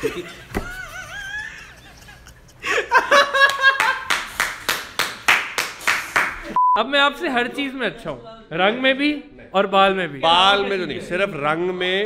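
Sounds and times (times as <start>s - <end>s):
men laughing: 0.0s - 4.2s
rapid clapping: 3.4s - 6.5s.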